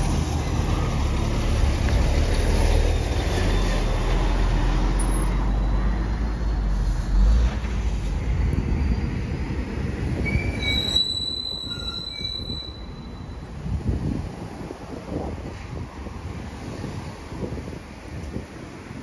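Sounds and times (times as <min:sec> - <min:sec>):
high-pitched squeals: 0:10.1 - 0:13.5.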